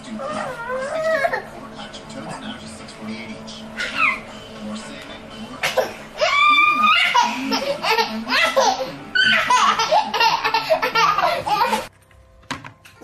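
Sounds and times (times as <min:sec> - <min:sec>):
small child laughing: 0:06.2 - 0:11.9.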